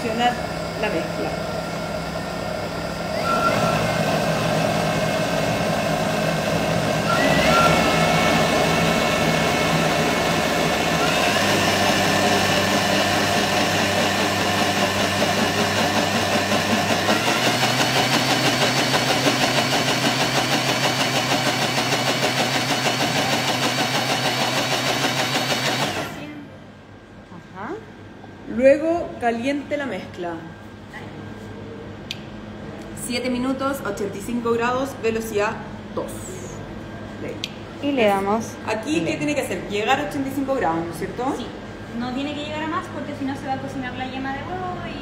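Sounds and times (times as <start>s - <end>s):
blender motor whine: 0.0s - 26.4s.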